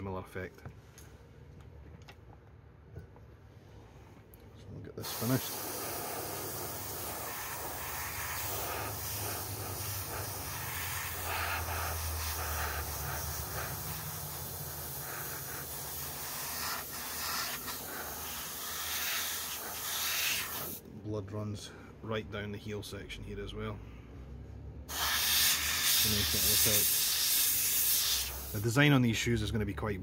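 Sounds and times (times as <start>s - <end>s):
airbrush hiss: 5.0s - 20.8s, 24.9s - 28.8s.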